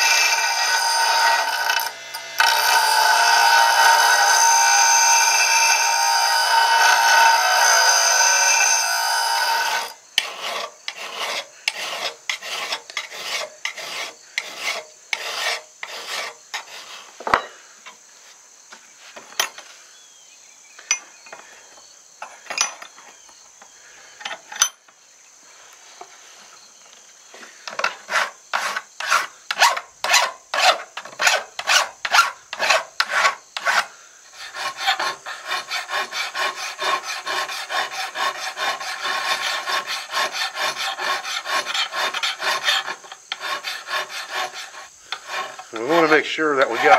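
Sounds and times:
file stroking steel: 0:00.0 - 0:17.1, 0:28.0 - 0:46.9.

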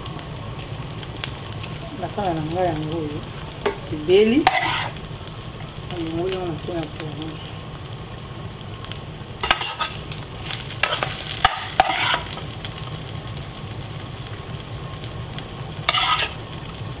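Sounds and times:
fish sizzling in a frying pan: 0:00.0 - 0:17.0
spoon scraping a pan: 0:03.6 - 0:05.0, 0:09.4 - 0:12.5, 0:15.8 - 0:16.5.

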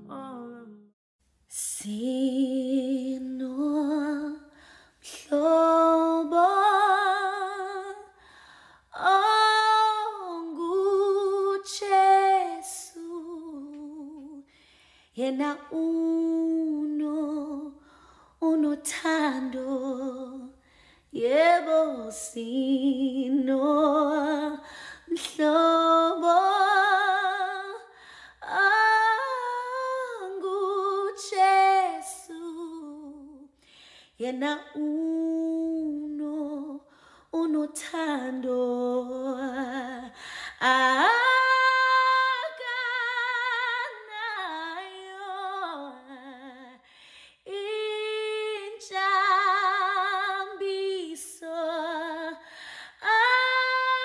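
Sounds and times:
woman singing unaccompanied: 0:00.0 - 0:00.9, 0:01.6 - 0:08.2, 0:15.2 - 0:17.8, 0:21.2 - 0:33.5, 0:47.5 - 0:52.4.

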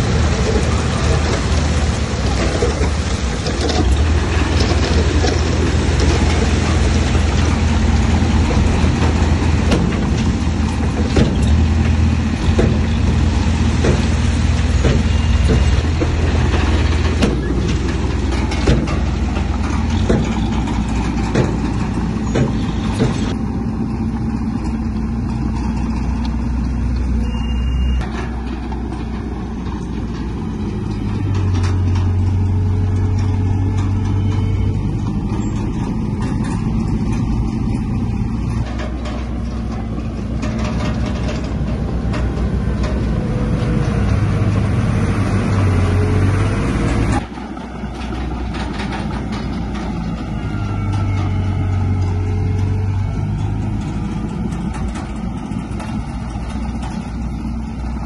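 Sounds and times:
heavy machinery diesel engines: 0:00.0 - 0:58.0
sharp knocks: 0:03.5 - 0:23.4.

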